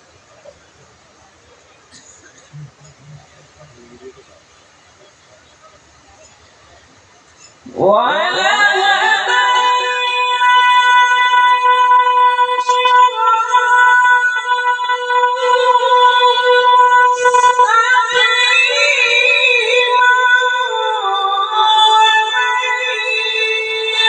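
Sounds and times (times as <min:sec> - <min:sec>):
person reciting in long melismatic note: 0:07.7 - 0:24.0.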